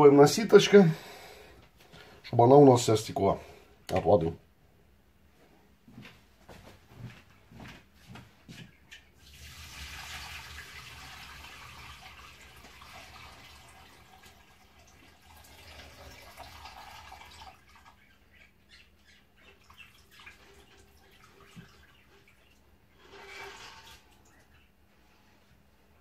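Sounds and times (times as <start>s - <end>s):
water poured through sieve: 9.2s - 18.0s, 19.6s - 24.4s.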